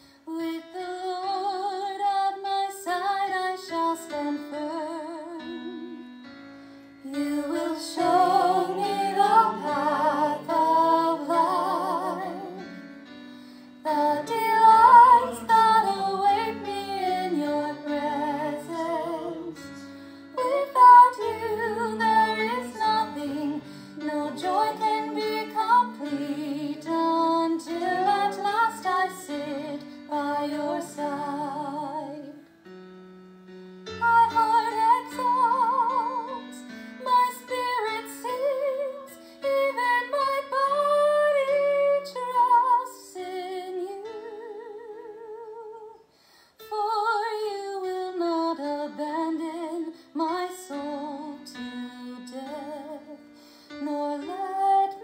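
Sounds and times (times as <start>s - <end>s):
sustained instrumental accompaniment: 5.6s - 31.6s
woman singing with vibrato: 7.1s - 12.8s, 13.8s - 19.6s, 20.4s - 32.4s, 34.0s - 46.0s.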